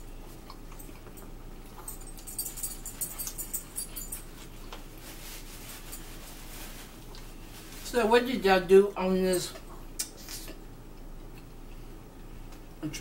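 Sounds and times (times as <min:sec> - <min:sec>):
bright metallic jingling: 0:01.8 - 0:04.4.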